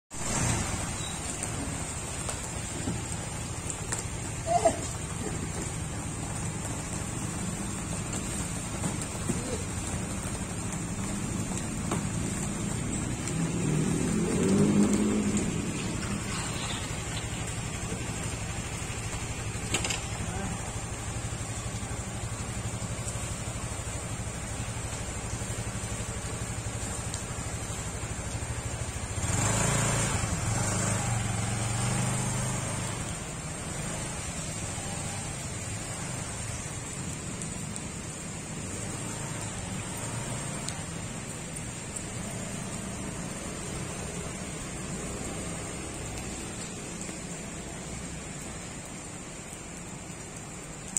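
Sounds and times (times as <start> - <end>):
hiss from wet street: 0.1 - 50.9
rain falling: 0.1 - 50.9
motorbike engine revving: 13.2 - 17.0, 29.2 - 33.0
motor scooter engine revving: 29.2 - 32.8.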